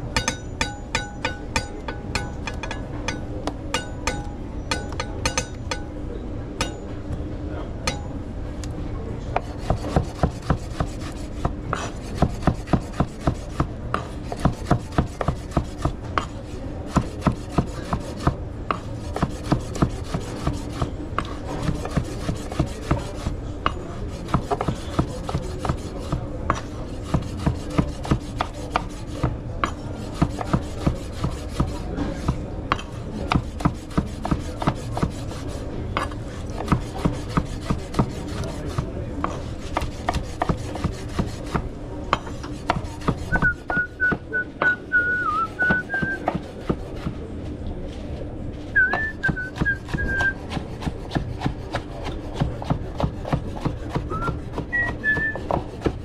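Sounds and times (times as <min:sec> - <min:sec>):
kitchen utensil scraping: 0:09.4 - 0:23.3.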